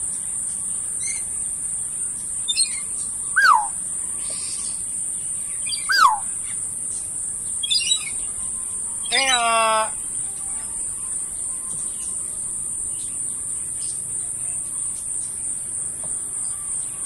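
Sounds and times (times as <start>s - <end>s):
steady high-pitched hiss: 0.0s - 17.0s
bird whistled notes: 2.4s - 3.8s, 5.5s - 6.5s, 7.6s - 8.4s
short high bird chirps: 2.5s - 3.8s, 5.7s - 6.3s.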